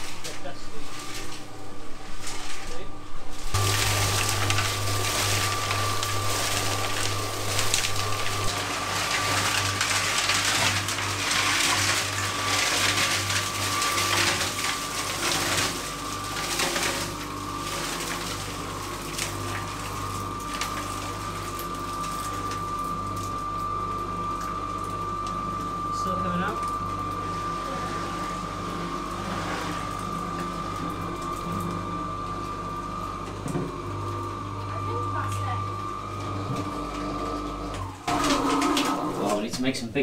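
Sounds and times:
gritty rattle and slosh: 0:00.0 - 0:23.4
cement mixer motor hum: 0:00.0 - 0:40.0.

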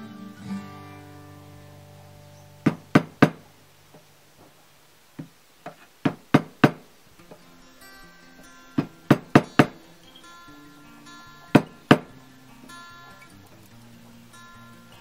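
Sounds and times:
acoustic guitar chord: 0:00.0 - 0:04.2, 0:07.2 - 0:15.0
sharp knocks: 0:02.6 - 0:04.5, 0:05.2 - 0:07.4, 0:08.8 - 0:09.8, 0:11.6 - 0:12.1.

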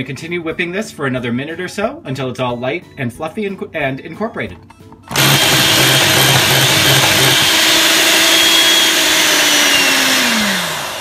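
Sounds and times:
electric hand mixer whining: 0:05.1 - 0:11.0.

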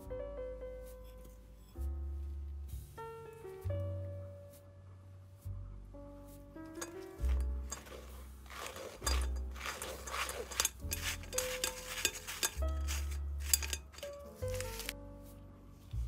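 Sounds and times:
spatula scratching through sieve: 0:06.7 - 0:15.0.

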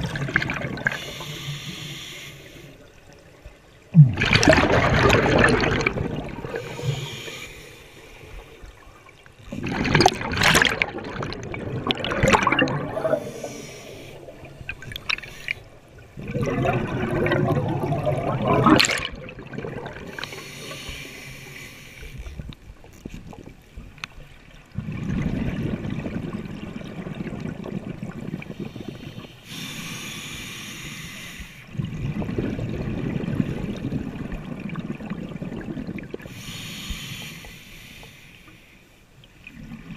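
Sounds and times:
regulator bubbles gurgling: 0:00.0 - 0:01.9, 0:02.5 - 0:07.6, 0:08.3 - 0:21.2, 0:24.5 - 0:29.7, 0:31.7 - 0:36.4.

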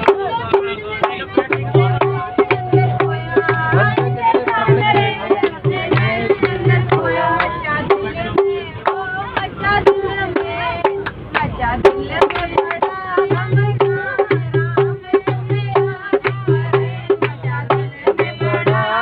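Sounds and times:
hand-clapping: 0:00.0 - 0:07.6, 0:12.2 - 0:13.0, 0:16.2 - 0:18.4
hand drum beating: 0:00.0 - 0:11.1, 0:11.8 - 0:19.0
group singing devotional song: 0:00.0 - 0:19.0.

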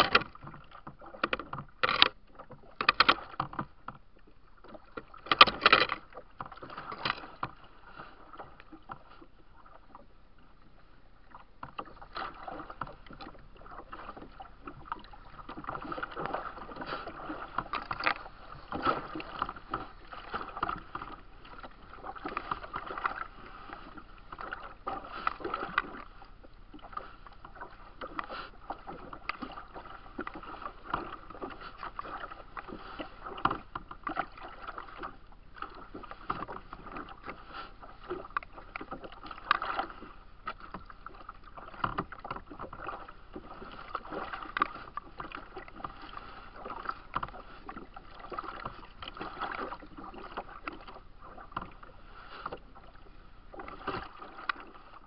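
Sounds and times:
steady wash of water: 0:00.0 - 0:55.0
waves slapping a kayak hull: 0:00.0 - 0:55.0
water splashing on bank: 0:11.8 - 0:26.2.

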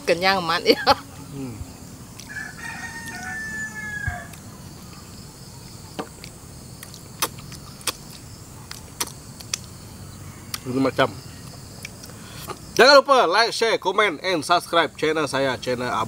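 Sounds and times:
rooster crowing: 0:02.2 - 0:04.6, 0:10.0 - 0:10.6.

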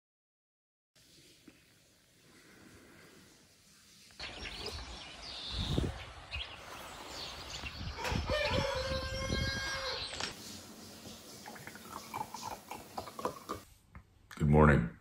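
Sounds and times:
birds chirping: 0:03.8 - 0:13.6.

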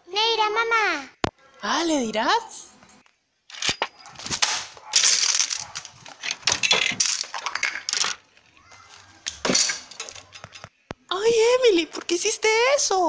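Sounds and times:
plastic toys clattering and rustling: 0:03.5 - 0:10.8
plastic toys clicking: 0:05.0 - 0:08.3, 0:09.2 - 0:10.8.

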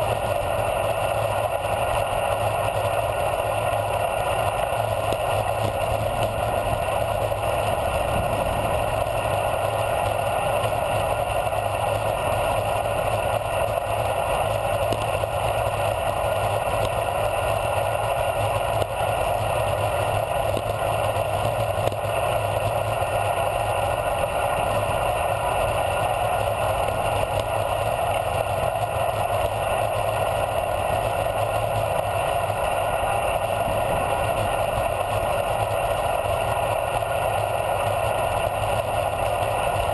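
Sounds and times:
bicycle tyres on paved road: 0:00.0 - 0:39.9
wind rushing across microphone: 0:04.4 - 0:13.8, 0:30.9 - 0:35.6.

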